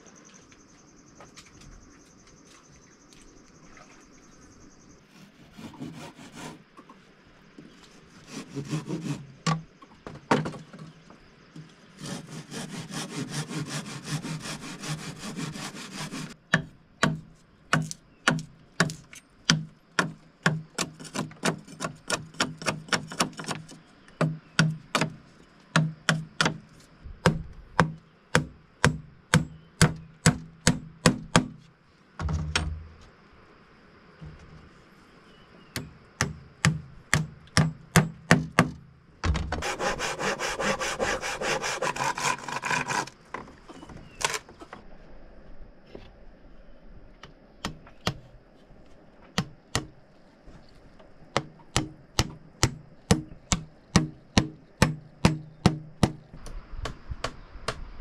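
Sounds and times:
hand saw sawing wood: 5.1s - 6.6s, 8.1s - 9.4s, 12.0s - 16.4s, 39.6s - 43.2s
sharp strikes on wood: 16.5s - 23.6s, 24.2s - 26.6s, 27.2s - 31.6s, 35.8s - 39.8s, 49.4s - 50.0s, 51.4s - 57.9s.

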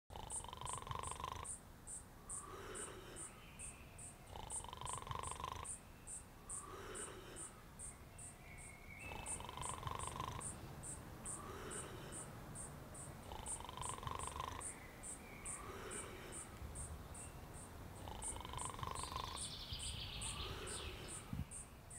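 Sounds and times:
insects chirping: 0.1s - 21.9s
lower insect calls: 0.1s - 21.9s.

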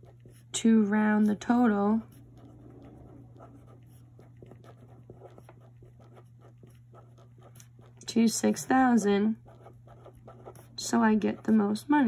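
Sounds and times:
marker writing on paper: 0.0s - 0.5s, 2.1s - 8.0s, 9.5s - 11.6s
low hum: 0.0s - 11.2s.

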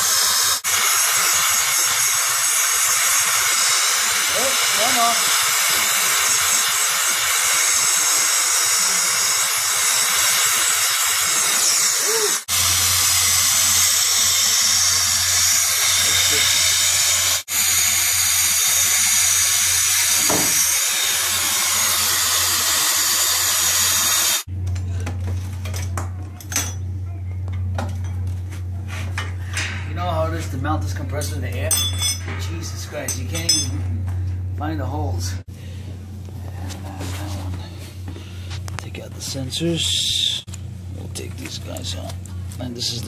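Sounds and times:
torch hissing: 0.0s - 24.5s
light metallic clinks: 31.2s - 33.8s.

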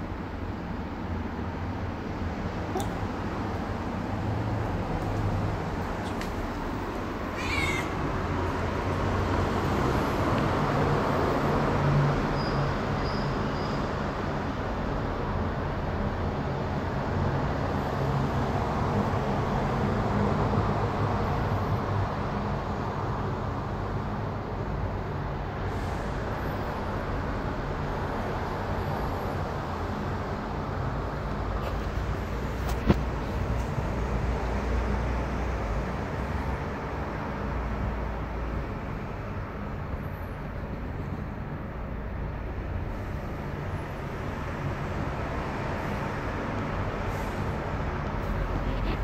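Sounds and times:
cat chirp: 2.7s - 3.0s, 7.3s - 8.1s.

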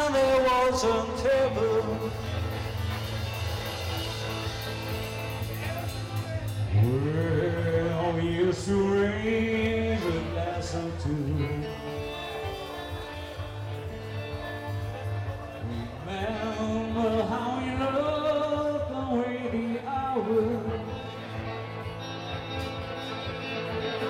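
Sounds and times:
man singing: 0.0s - 3.0s, 5.9s - 12.9s, 15.5s - 22.0s
live band playing: 0.0s - 24.0s.

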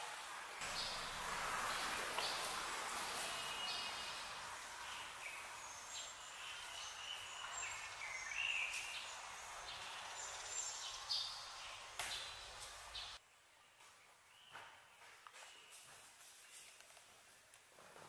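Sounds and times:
steady background hiss: 0.0s - 13.8s
small birds chirping: 0.6s - 13.2s.

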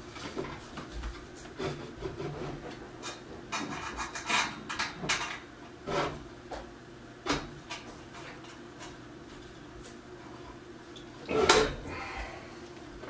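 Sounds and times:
scraping and rubbing: 1.5s - 4.6s.

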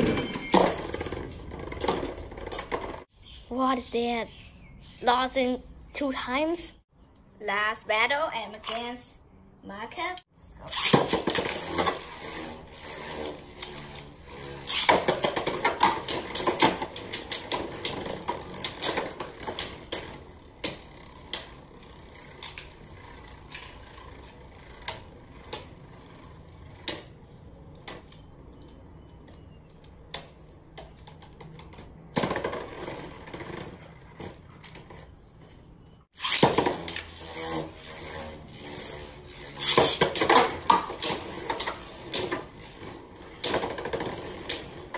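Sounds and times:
spinning tops whirring on plastic: 10.7s - 29.2s, 36.2s - 44.9s.

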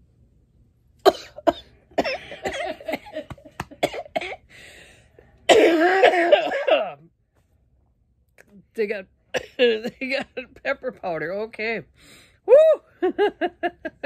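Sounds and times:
woman coughing: 1.0s - 4.5s, 5.5s - 7.0s, 9.3s - 10.4s.

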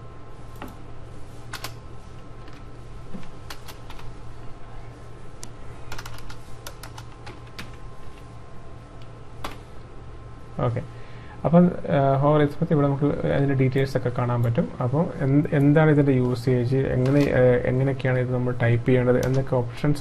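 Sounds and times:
steady background hum: 0.0s - 20.0s
computer keyboard keystrokes: 5.9s - 7.8s.

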